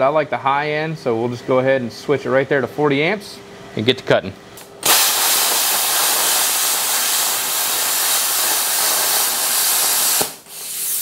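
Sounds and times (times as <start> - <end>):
plasma cutter hissing: 4.8 - 11.0.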